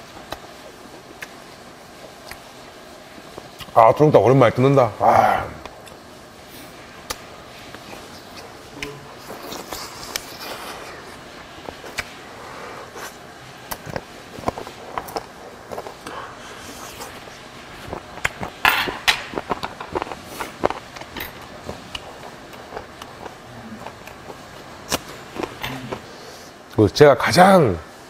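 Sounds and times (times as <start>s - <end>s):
man chewing food: 0.1s - 3.8s, 5.4s - 26.6s
breath or mouth noise: 11.9s - 13.2s, 15.8s - 17.3s.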